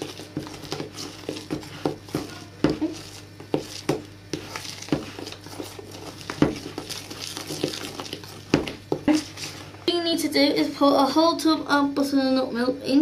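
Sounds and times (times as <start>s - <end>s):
hand mixing knocks against bowl: 0.0s - 9.7s
flour rustling: 0.0s - 9.9s.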